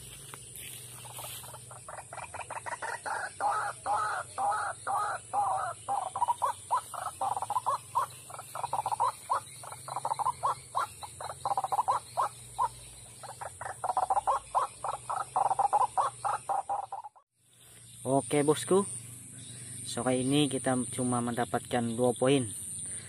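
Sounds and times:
waterhen calling: 1.0s - 17.2s.

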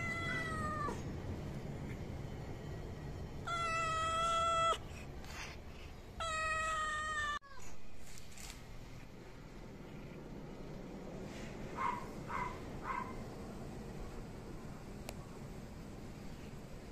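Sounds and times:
cat meowing: 0.0s - 1.0s, 3.4s - 4.8s, 6.2s - 7.6s.

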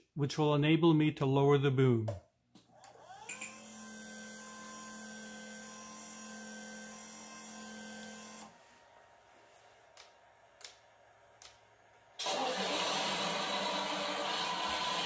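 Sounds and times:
small electric motor whining: 2.8s - 8.6s.

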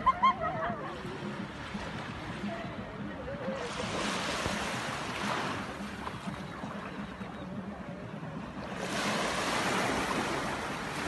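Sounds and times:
sea waves breaking on beach: 3.6s - 6.9s, 8.6s - 11.0s.

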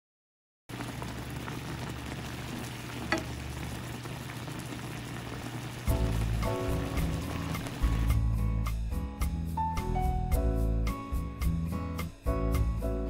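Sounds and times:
sauce bubbling and sizzling: 0.7s - 8.4s
music: 5.8s - 13.0s.

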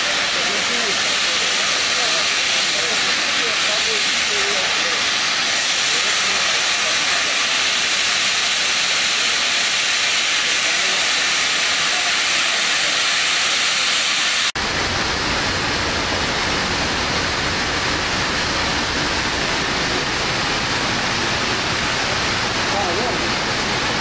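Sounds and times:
gas hissing from pipe: 0.0s - 24.0s
steady low rumbling rush: 14.6s - 24.0s.

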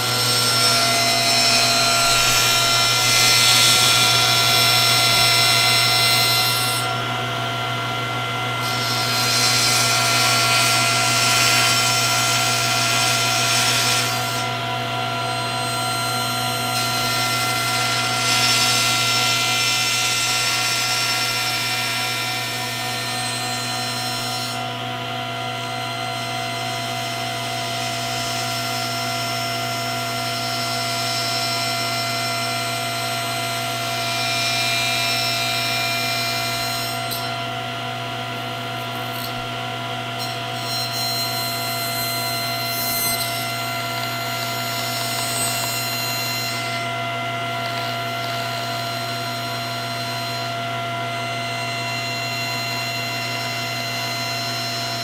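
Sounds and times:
table saw cutting wood: 0.0s - 55.0s.

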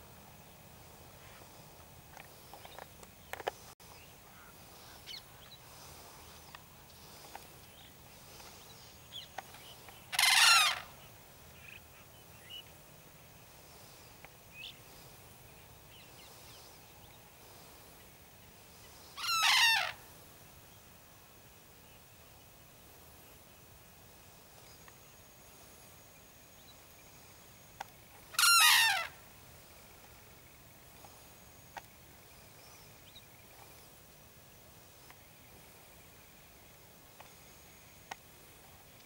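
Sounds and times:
cranes calling loudly: 10.1s - 10.9s, 19.2s - 20.0s, 28.3s - 29.2s.

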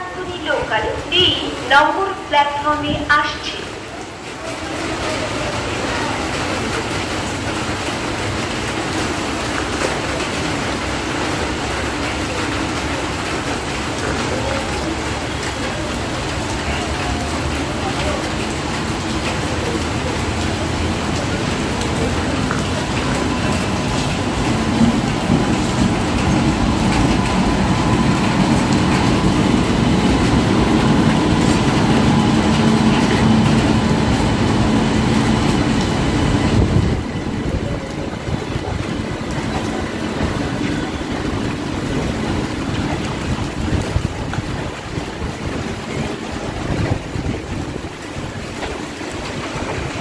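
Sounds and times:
train wheels rumbling on rails: 0.0s - 50.0s
electric locomotive hum: 17.4s - 50.0s.

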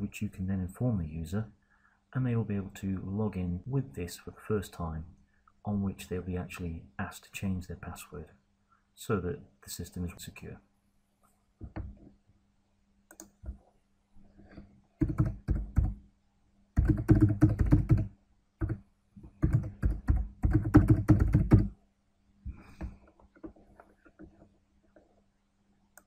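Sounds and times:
keyboard typing: 15.0s - 16.0s, 16.8s - 21.8s.

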